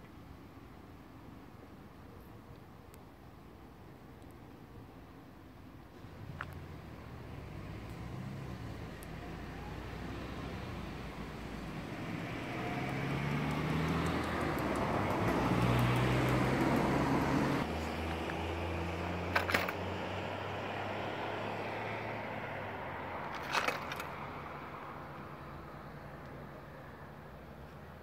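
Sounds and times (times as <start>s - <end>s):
low engine hum: 5.9s - 26.8s
vehicle passing: 6.0s - 26.2s.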